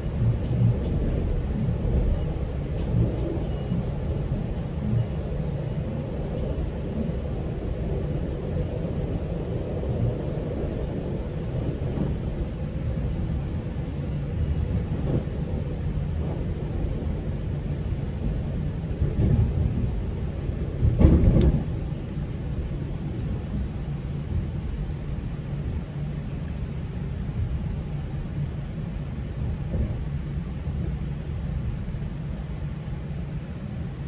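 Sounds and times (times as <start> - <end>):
train rumble from aboard: 0.0 - 34.0
train bumps: 20.7 - 21.9.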